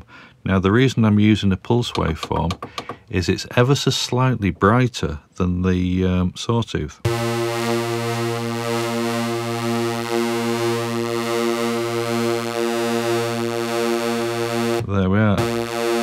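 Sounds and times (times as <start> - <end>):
synthesiser low note: 7.1 - 16.0.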